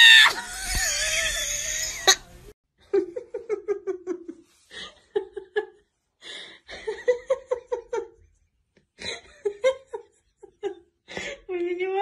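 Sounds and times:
person laughing high-pitched: 0.2s - 2.3s.

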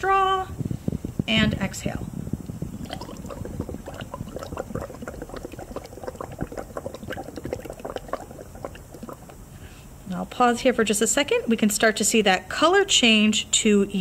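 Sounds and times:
bubbles blown through a straw: 2.5s - 9.5s.

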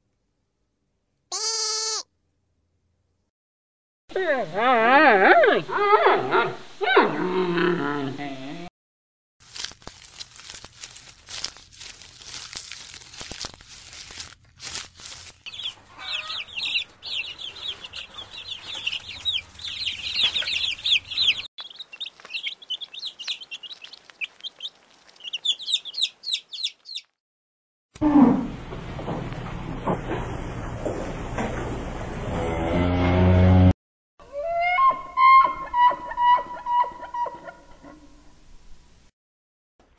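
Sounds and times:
clicks and rustles: 9.4s - 15.7s
chicks peeping: 15.5s - 27.1s.

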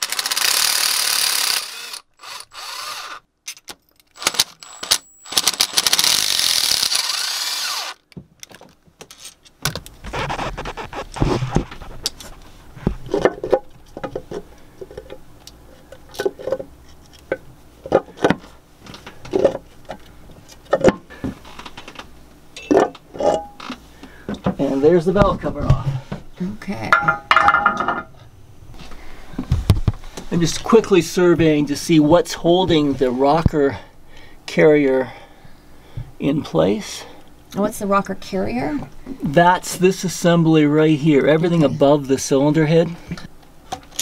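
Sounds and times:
power tool running: 0.0s - 3.2s, 4.2s - 8.0s
metal clinks and knocks: 26.9s - 28.1s.

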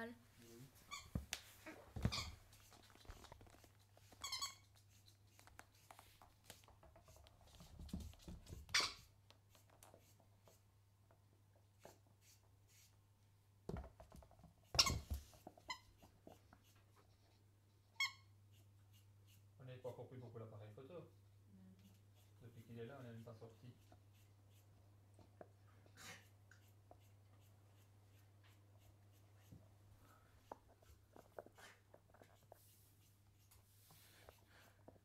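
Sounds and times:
toy ball squeaks: 2.0s - 2.4s, 4.1s - 4.7s, 8.7s - 9.1s, 14.7s - 16.0s, 18.0s - 18.3s.

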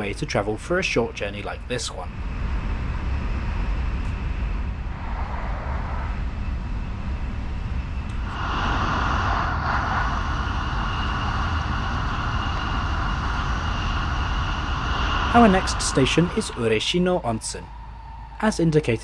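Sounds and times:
train cabin low rumble: 0.0s - 19.0s
rushing hiss: 8.2s - 18.8s.

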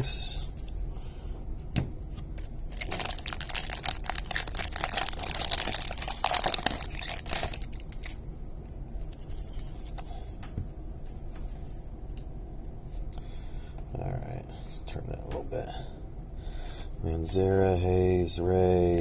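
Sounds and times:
foil wrapper tearing and crinkling: 2.7s - 8.2s.

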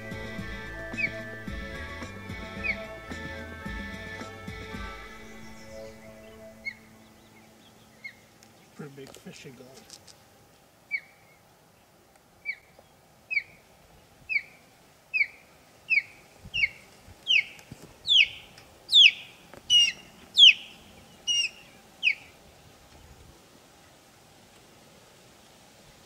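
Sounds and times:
osprey whistled chirps: 0.0s - 8.3s, 15.2s - 22.4s.

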